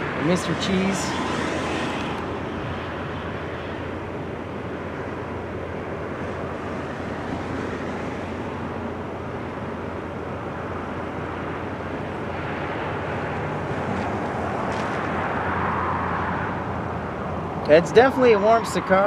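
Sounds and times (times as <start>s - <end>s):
distant turboprop plane rumble: 0.0s - 19.0s
road traffic: 0.0s - 19.0s.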